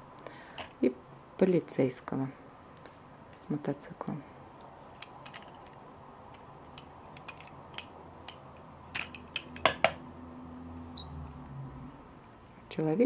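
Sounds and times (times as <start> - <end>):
plastic toy pieces clicking: 4.9 - 10.0.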